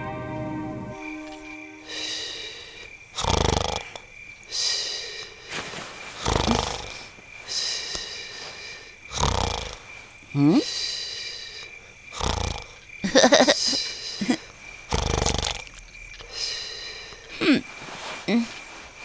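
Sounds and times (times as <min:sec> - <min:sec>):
rising whistle: 0:00.0 - 0:02.2
night insects chirring: 0:00.0 - 0:19.0
cartoon snoring: 0:03.2 - 0:04.1, 0:06.2 - 0:07.1, 0:09.1 - 0:09.8, 0:12.1 - 0:12.8, 0:14.2 - 0:15.7.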